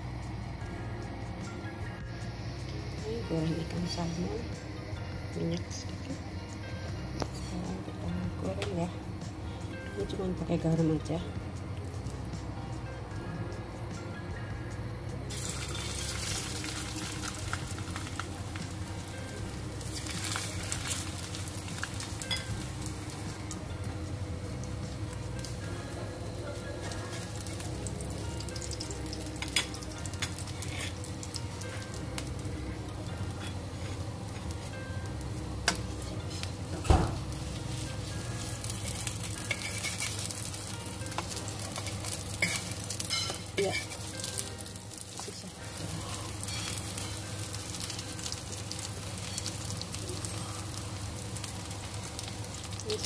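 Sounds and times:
fish sizzling in hot oil: 0:15.3 - 0:25.7, 0:26.6 - 0:53.0
metal spatula scraping a wok: 0:30.5 - 0:31.0, 0:39.4 - 0:40.2.

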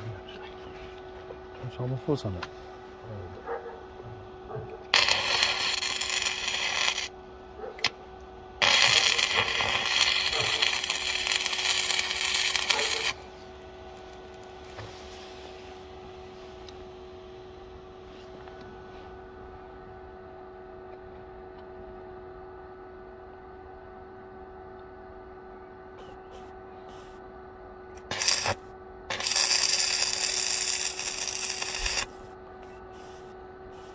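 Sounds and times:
faint steady hum: 0:00.0 - 0:33.9
welding arc crackling: 0:04.8 - 0:07.2, 0:08.6 - 0:14.5, 0:28.0 - 0:32.3.

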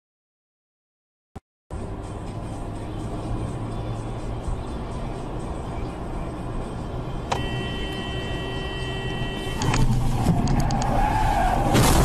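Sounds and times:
car road noise: 0:01.7 - 0:12.0
car horn held: 0:07.3 - 0:09.8
loud crash impact: 0:11.6 - 0:12.0.

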